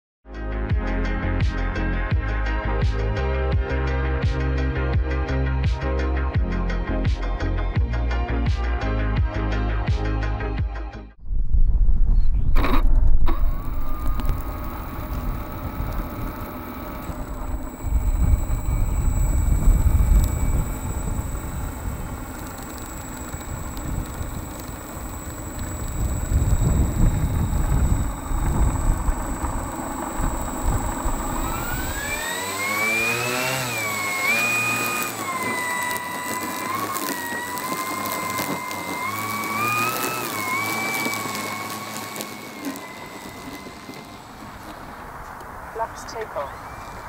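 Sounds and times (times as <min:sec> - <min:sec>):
low rumbling noise: 0:11.2 - 0:47.0
faint steady whine: 0:12.5 - 0:47.0
model aircraft engines running up: 0:12.6 - 0:47.0.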